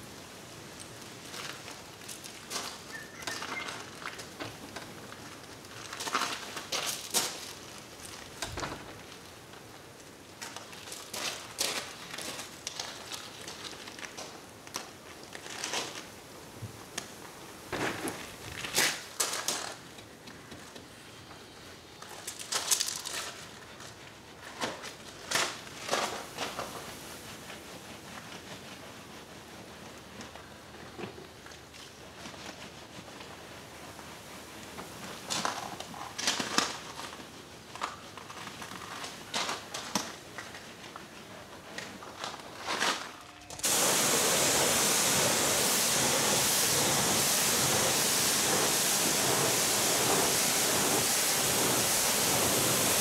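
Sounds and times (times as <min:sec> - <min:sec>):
wash mitt rubbing wet bodywork: 0:43.6 - 0:53.0.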